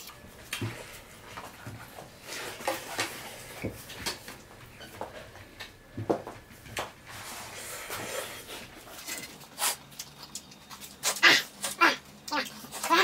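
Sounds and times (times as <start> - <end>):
people chewing: 0.0 - 13.0.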